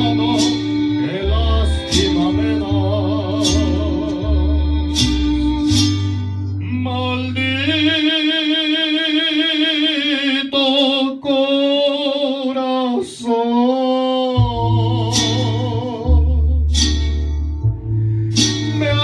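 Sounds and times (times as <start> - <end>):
man singing into microphone: 0.0 - 5.0, 6.6 - 16.8, 18.7 - 19.0
instrumental backing: 0.0 - 9.2, 13.2 - 19.0.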